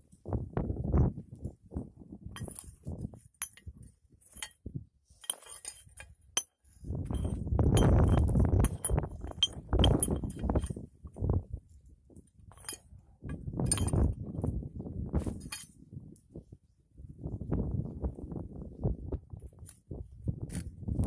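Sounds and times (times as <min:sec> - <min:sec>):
metal clinks: 0:02.4 - 0:02.8, 0:03.4 - 0:03.7, 0:05.2 - 0:10.8, 0:12.5 - 0:12.8, 0:13.6 - 0:14.1
metal tool scraping through ash: 0:02.4 - 0:10.8, 0:12.5 - 0:12.8, 0:13.6 - 0:14.1, 0:15.2 - 0:15.7.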